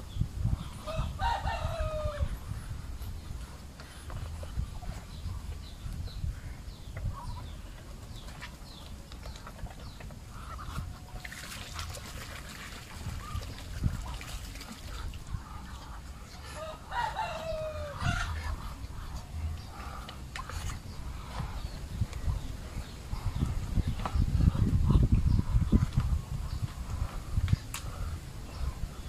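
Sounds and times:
rooster crowing: 0.9 - 2.3, 16.6 - 18.3
duck splashing in water: 8.2 - 16.2
poultry calling: 14.8 - 21.8.

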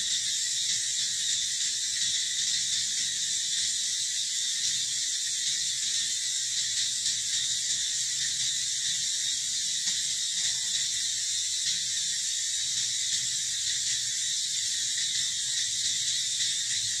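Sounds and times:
high-pitched insect chorus: 0.0 - 17.0.

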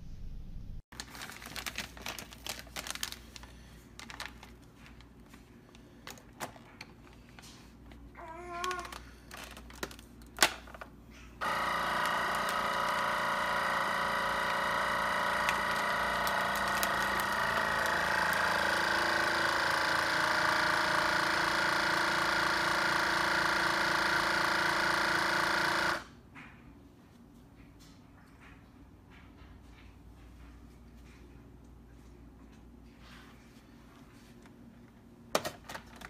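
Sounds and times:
vacuum sealer pump motor running: 11.4 - 26.1.

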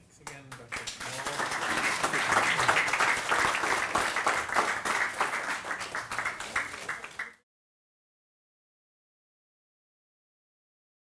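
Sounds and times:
audience applauding: 0.5 - 7.4.

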